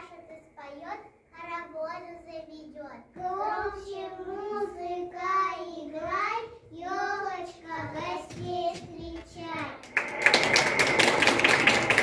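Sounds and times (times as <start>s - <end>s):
child singing: 1.4s - 9.8s.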